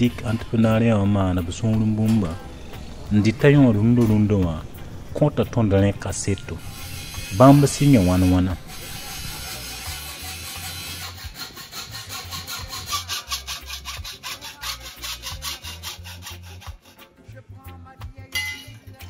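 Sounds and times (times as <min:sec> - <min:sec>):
hacksaw cutting steel tube: 0:06.6 - 0:17.1.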